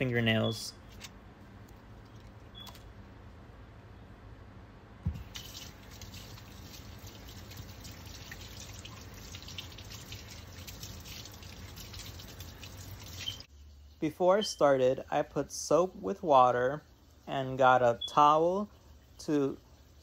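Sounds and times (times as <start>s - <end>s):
knock: 5.0s - 5.2s
faucet running into steel sink: 5.2s - 13.4s
soapy hands rubbing: 5.2s - 13.5s.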